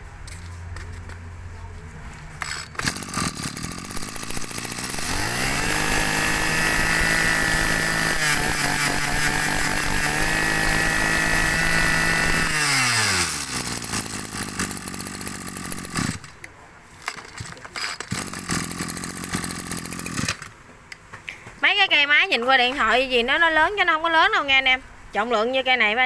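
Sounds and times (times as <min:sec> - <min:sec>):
brush cutter engine revving: 0:02.4 - 0:16.5, 0:17.4 - 0:20.5.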